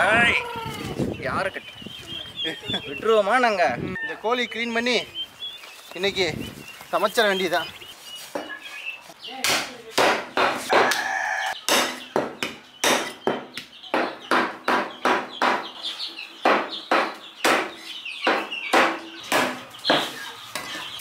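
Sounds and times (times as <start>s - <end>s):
knife chopping meat on wood: 11.7s - 15.6s.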